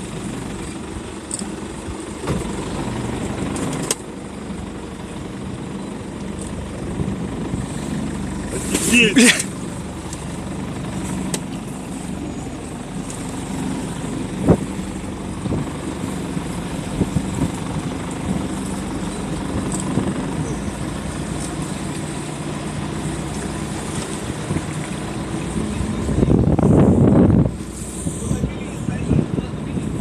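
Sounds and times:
outboard motor running: 0.0 - 30.0
water noise: 0.0 - 30.0
wind noise: 16.8 - 18.6, 25.6 - 30.0.

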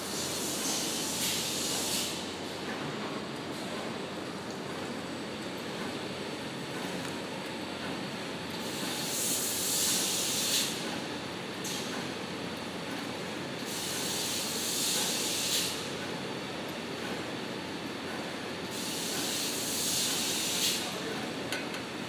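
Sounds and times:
packing machinery running: 0.0 - 10.0.

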